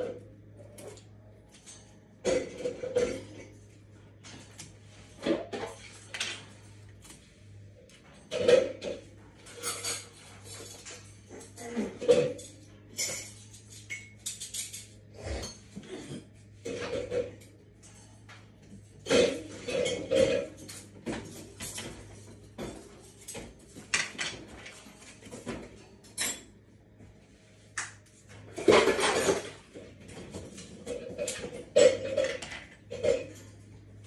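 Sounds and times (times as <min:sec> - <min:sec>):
clinking and clattering: 0:08.2 - 0:26.5, 0:28.6 - 0:33.7.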